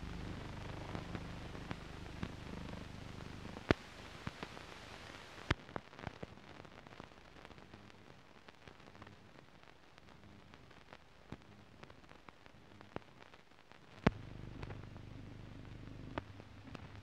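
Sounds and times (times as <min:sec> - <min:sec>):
film soundtrack hiss and crackle: 0:00.0 - 0:17.0
clicks and pops: 0:14.1 - 0:17.0
low hum: 0:14.1 - 0:17.0.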